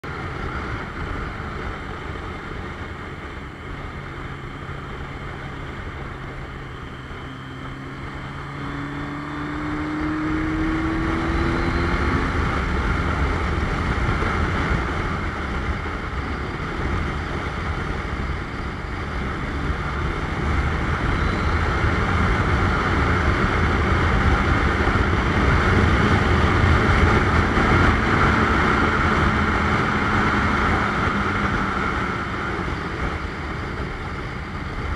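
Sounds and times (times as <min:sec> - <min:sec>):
motorcycle engine running: 0:00.0 - 0:34.9
rising tone: 0:06.4 - 0:12.8.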